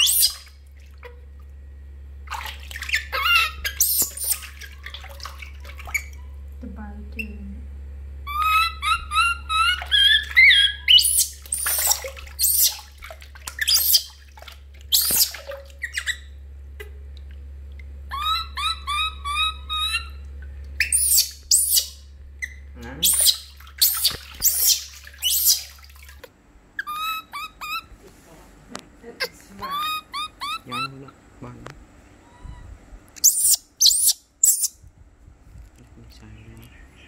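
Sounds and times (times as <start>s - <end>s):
baby monkey crying and screaming: 0.0s - 0.5s, 2.8s - 4.6s, 8.2s - 12.9s, 13.6s - 14.2s, 14.9s - 16.4s, 18.1s - 20.2s, 20.8s - 25.8s, 26.8s - 27.9s, 29.6s - 31.0s, 32.3s - 34.8s
low steady hum: 0.0s - 37.0s.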